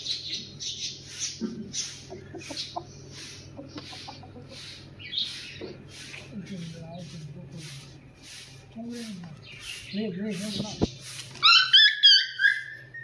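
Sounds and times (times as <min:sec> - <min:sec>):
chicken clucking: 0:01.1 - 0:06.1.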